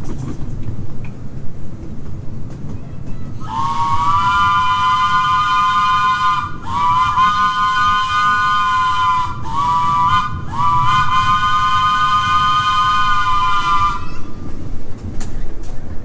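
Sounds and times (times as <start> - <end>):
train running rumble: 0.0 - 16.0
train chime whistle blasts: 3.4 - 14.2.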